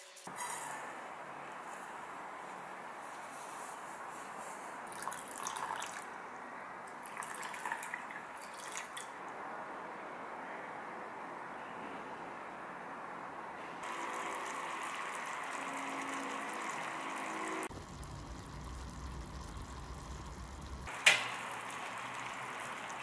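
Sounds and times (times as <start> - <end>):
sugar syrup bubbling in saucepan: 13.8 - 23.0.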